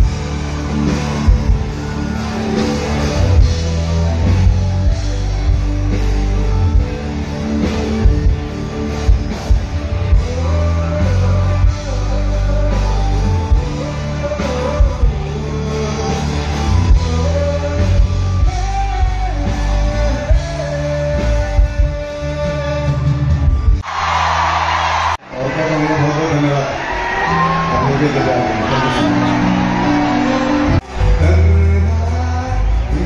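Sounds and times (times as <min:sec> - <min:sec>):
live rock band playing: 0:00.0 - 0:25.2, 0:26.9 - 0:33.0
man singing: 0:10.0 - 0:23.2, 0:30.9 - 0:33.0.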